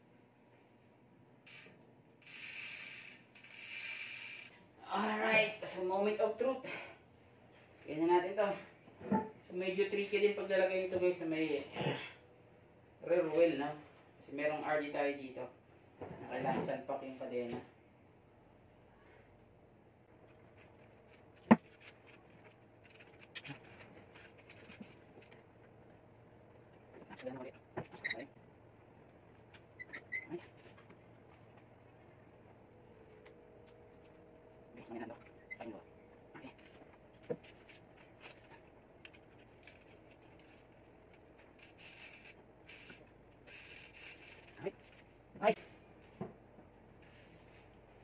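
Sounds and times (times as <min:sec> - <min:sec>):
bike wheel clicks and rattles: 0:01.4 - 0:04.6, 0:20.2 - 0:25.7, 0:36.6 - 0:45.1
light clicks of bicycle chain: 0:39.0 - 0:45.0.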